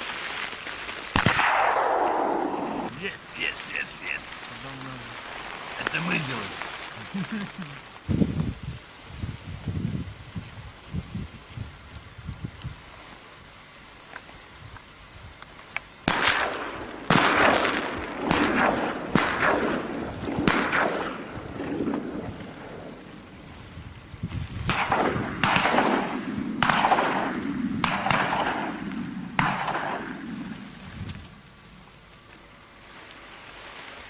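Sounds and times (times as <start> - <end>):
shotgun shots echoing: 1.1 - 2.9, 16.1 - 22.8, 24.7 - 30.5.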